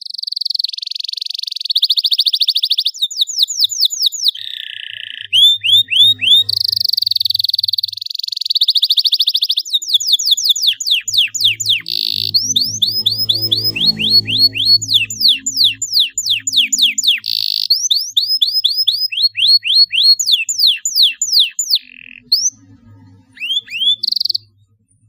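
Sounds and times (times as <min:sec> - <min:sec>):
canary trilling song: 0:00.0 - 0:25.0
downward-slurred whistled notes: 0:05.2 - 0:07.3, 0:10.0 - 0:24.7.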